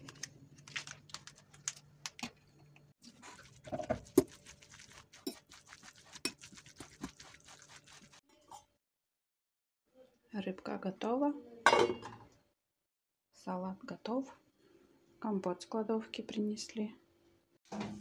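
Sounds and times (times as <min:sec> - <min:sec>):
metal utensil stirring in ceramic bowl: 0:03.1 - 0:08.2.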